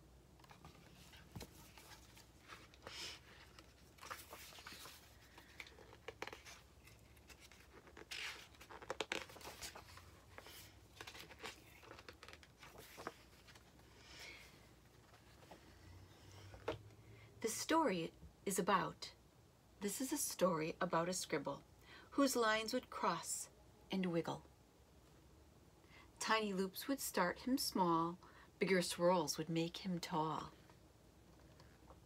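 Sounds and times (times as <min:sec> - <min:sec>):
book pages turning: 0:00.4 - 0:13.8.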